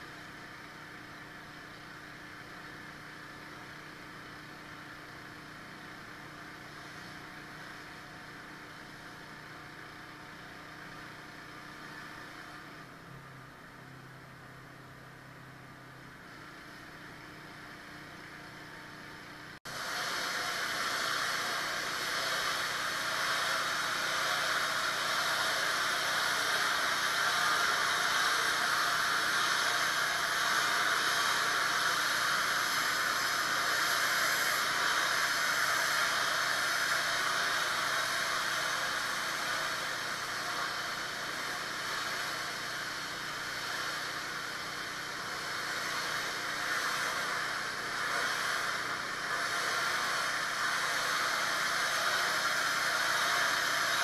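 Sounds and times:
washer engine running: 0.0s - 54.0s
pressure washer spray hiss: 19.7s - 54.0s.

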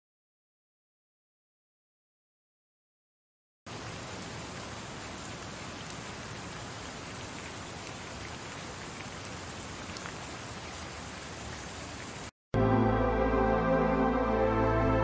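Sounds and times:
rain-like hiss: 3.7s - 12.3s.

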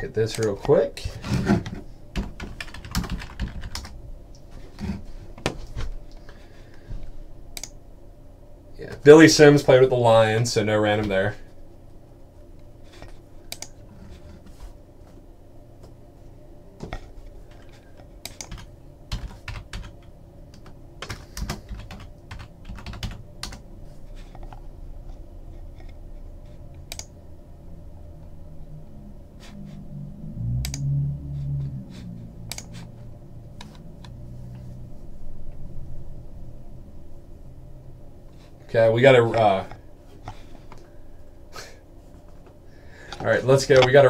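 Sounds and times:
computer keyboard typing: 2.1s - 4.0s, 17.5s - 23.6s
short low hum: 20.0s - 44.0s.

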